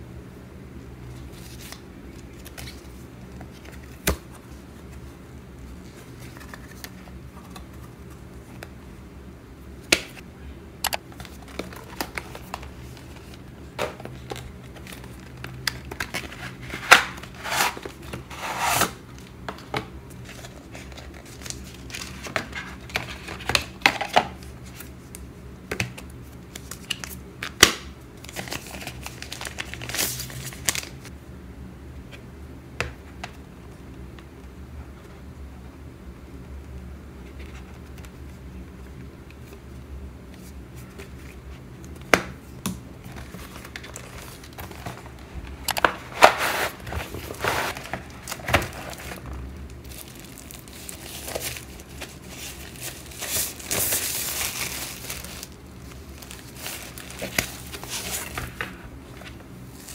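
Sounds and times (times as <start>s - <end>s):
packaging rustling and crinkling: 28.2s - 31.1s, 43.0s - 59.9s
cardboard box being opened: 45.9s - 49.3s.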